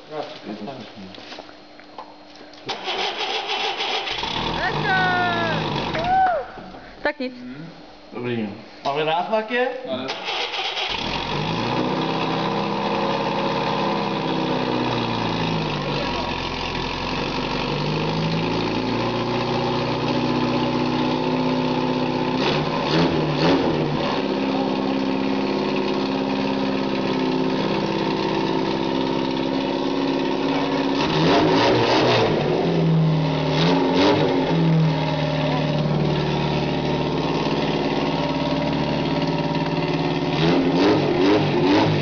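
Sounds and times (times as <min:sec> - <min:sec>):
engine revving on test stand: 0:02.7 - 0:06.1, 0:10.1 - 0:14.7, 0:20.7 - 0:24.4, 0:30.8 - 0:42.0.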